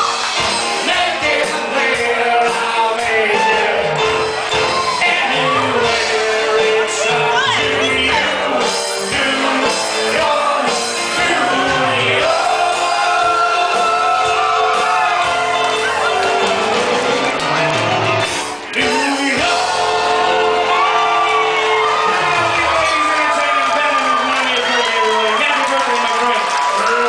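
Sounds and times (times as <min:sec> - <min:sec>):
live band music: 0:00.0 - 0:25.5
people shouting and whooping: 0:03.0 - 0:08.2, 0:11.3 - 0:17.4, 0:18.8 - 0:27.0
women singing loudly: 0:04.9 - 0:08.3.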